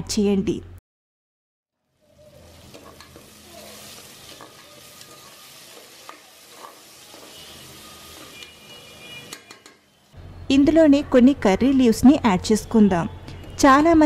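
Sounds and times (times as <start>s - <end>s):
onions sizzling in hot oil: 1.8s - 10.2s
metal spoon stirring and scraping: 2.2s - 9.8s.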